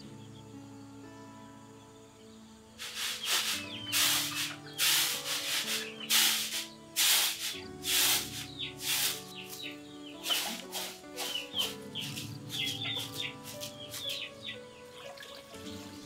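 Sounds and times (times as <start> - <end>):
hand fan swishing: 2.8 - 14.2.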